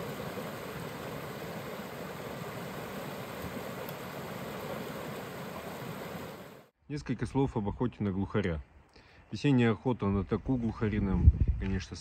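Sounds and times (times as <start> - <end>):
river water rushing: 0.0 - 6.7.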